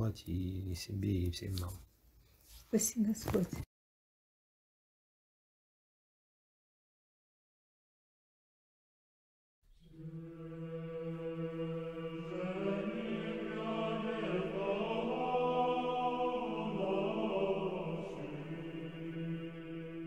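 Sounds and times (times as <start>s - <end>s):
choral chant: 9.7s - 20.0s.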